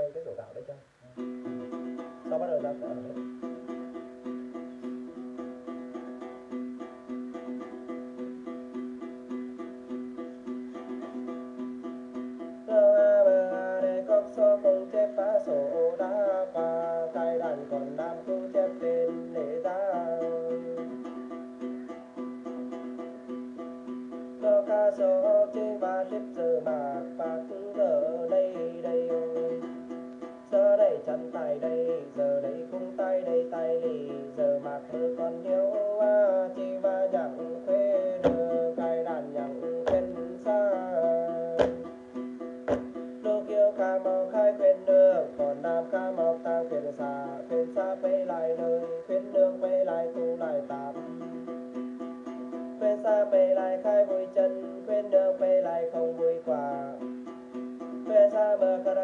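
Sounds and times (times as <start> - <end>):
man chanting: 0.0 - 3.6, 30.5 - 42.0
plucked lute: 0.0 - 59.0.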